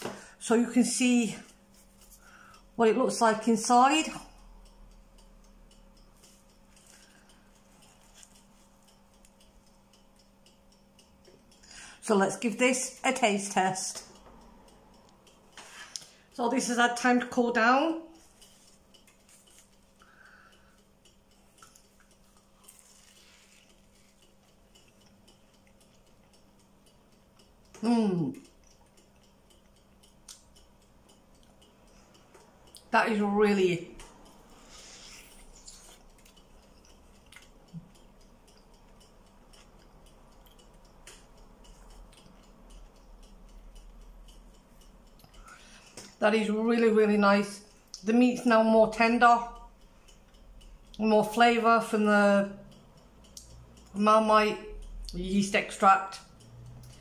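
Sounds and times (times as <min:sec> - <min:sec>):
faint steady hum: 0:00.0 - 0:57.0
person chewing pastry: 0:06.2 - 0:10.9, 0:18.2 - 0:27.8, 0:28.4 - 0:31.7, 0:34.5 - 0:46.2.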